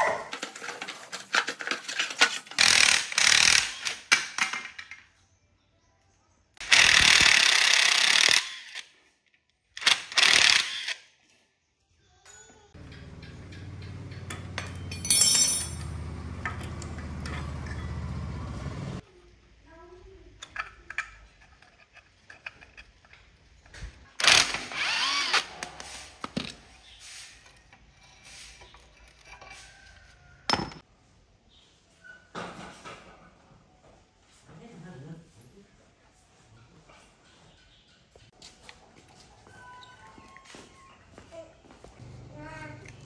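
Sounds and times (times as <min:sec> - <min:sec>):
impact wrench running: 0:02.6 - 0:03.9, 0:06.6 - 0:08.8, 0:09.8 - 0:11.0, 0:24.2 - 0:25.6
hand tools clinking on metal: 0:12.3 - 0:18.2.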